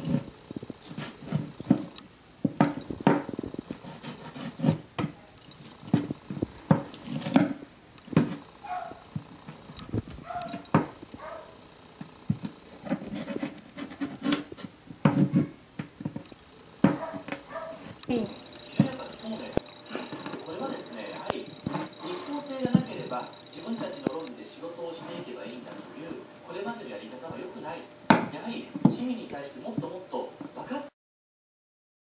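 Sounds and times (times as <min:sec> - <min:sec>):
knife scraping fish bone: 0:03.6 - 0:04.8.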